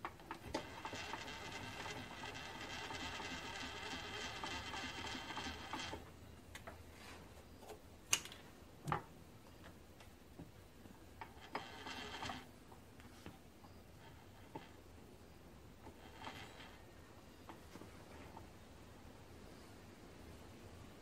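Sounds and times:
handwheel cranking whir: 0.0s - 6.1s, 11.2s - 12.5s, 15.8s - 16.8s.

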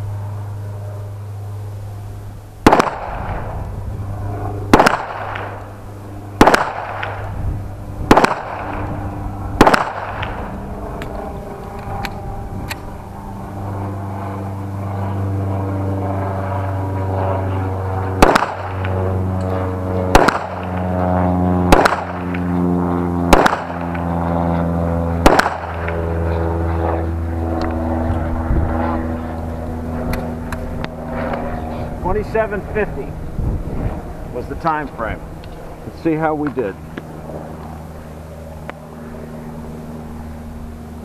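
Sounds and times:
engine drone: 0.0s - 41.0s
pistol shots: 2.6s - 3.5s, 4.7s - 5.7s, 6.4s - 7.3s, 8.1s - 8.9s, 9.6s - 10.5s, 18.2s - 18.9s, 20.1s - 20.8s, 21.7s - 22.3s, 23.3s - 24.0s, 25.2s - 25.9s.

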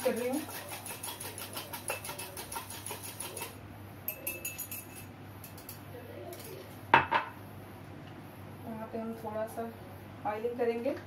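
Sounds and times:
utensil clinking against glass: 0.8s - 5.8s.

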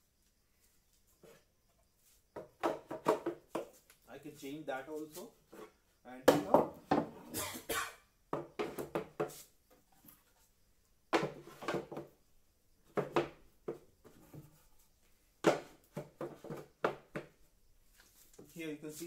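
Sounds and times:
wooden boxes knocking and clattering: 2.3s - 3.8s, 6.2s - 7.2s, 8.3s - 9.3s, 11.1s - 12.2s, 12.8s - 14.6s, 15.4s - 17.4s.

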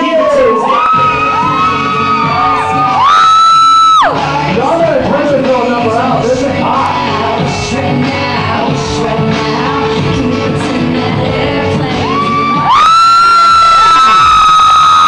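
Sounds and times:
high-pitched cheering scream: 0.0s - 4.2s, 12.0s - 15.0s
music with vocals over sound system: 0.0s - 15.0s.

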